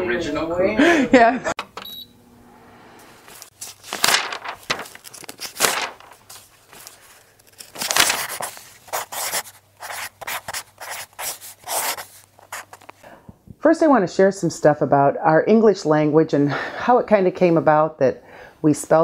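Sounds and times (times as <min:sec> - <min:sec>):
marker writing on a board: 0:08.9 - 0:12.9.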